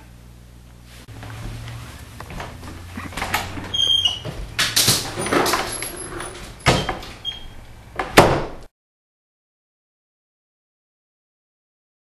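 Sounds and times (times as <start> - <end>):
door banging shut: 3.1 - 8.7.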